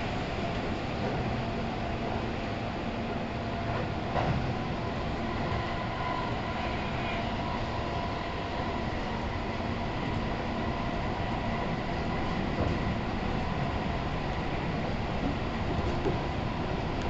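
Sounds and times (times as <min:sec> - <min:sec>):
train wheels rumbling on rail: 0:00.0 - 0:17.0.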